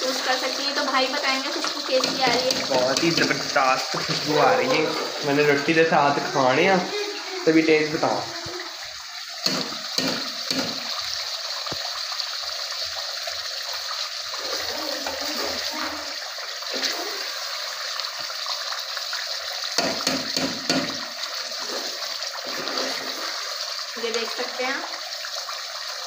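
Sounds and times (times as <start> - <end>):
gas burner hissing: 0.0 - 12.3
metal spoon scraping a pot: 21.6 - 23.5.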